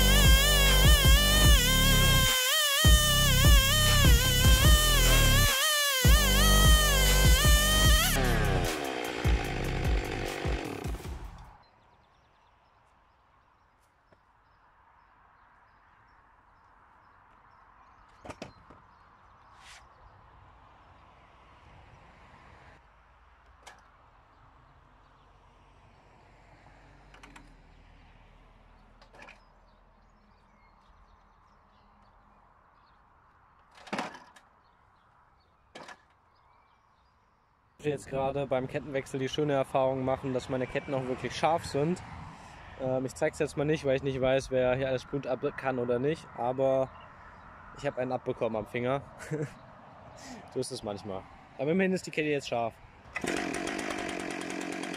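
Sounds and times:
chainsaw running: 0.0s - 11.5s, 53.0s - 54.9s
quiet outdoor ambience: 11.4s - 53.2s.

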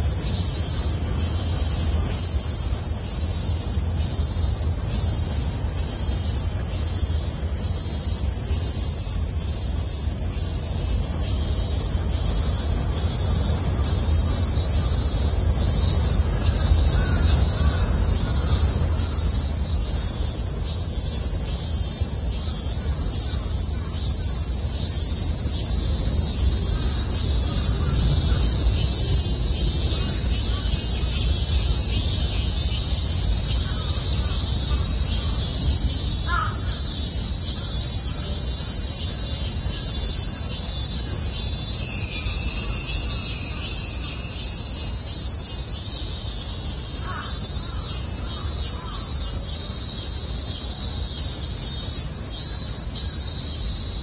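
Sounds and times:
lower-pitched buzz: 0.0s - 44.1s
cicadas buzzing: 0.0s - 54.0s
low rumble: 25.1s - 36.0s.

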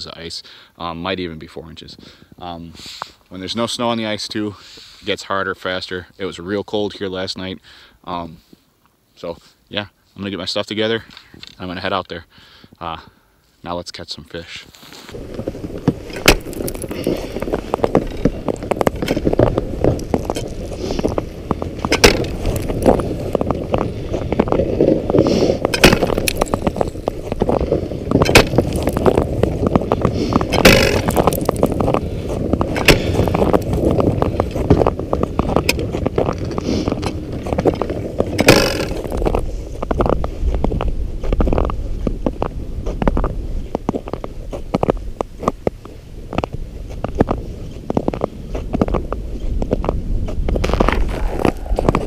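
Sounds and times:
steady scraping noise: 14.5s - 45.6s, 46.3s - 52.0s
spud bar striking ice: 16.1s - 17.2s, 21.9s - 23.0s, 25.7s - 26.9s, 28.2s - 29.2s, 30.5s - 31.8s, 32.8s - 33.4s, 38.4s - 39.2s.

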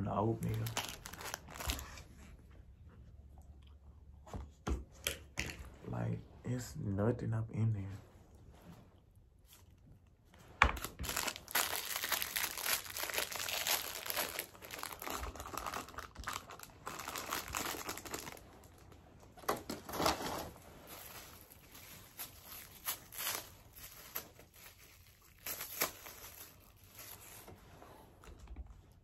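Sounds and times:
plastic packet crinkling and tearing: 0.2s - 2.0s, 10.7s - 27.5s.

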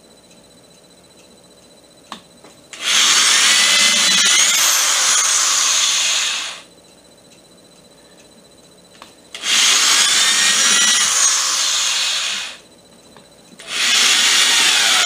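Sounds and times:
click: 0.3s - 2.6s
power drill drilling into wood: 2.8s - 6.6s, 9.4s - 12.6s, 13.6s - 15.0s.

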